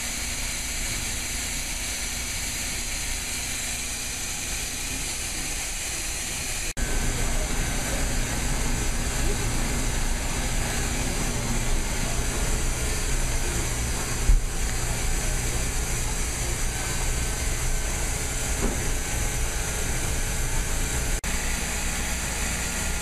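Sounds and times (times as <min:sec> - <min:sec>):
machinery humming and hissing: 0:00.0 - 0:23.0
brief thump: 0:18.6 - 0:18.9.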